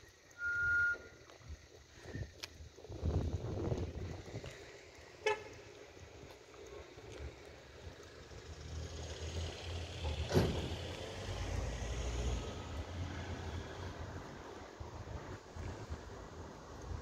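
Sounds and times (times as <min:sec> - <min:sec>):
short high squeak: 0:00.4 - 0:01.2
steady low rumble: 0:01.3 - 0:08.6.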